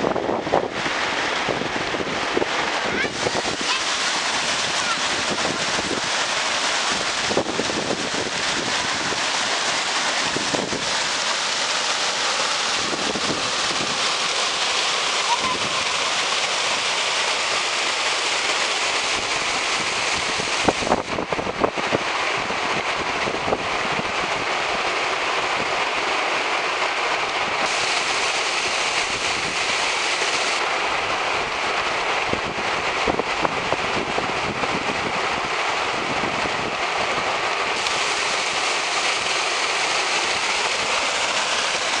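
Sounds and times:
stream rapids rushing: 0:00.0 - 0:42.0.

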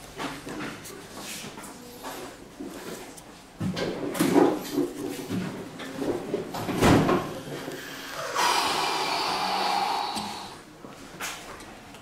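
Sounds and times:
steady hiss: 0:07.5 - 0:10.6.

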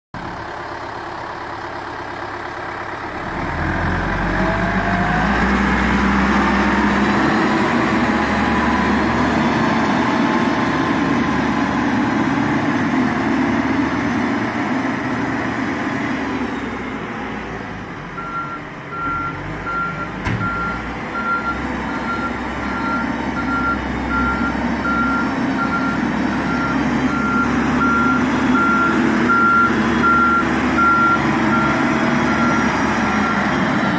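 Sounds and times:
diesel engine running: 0:00.2 - 0:33.9
reversing alarm beeping: 0:18.2 - 0:33.6.

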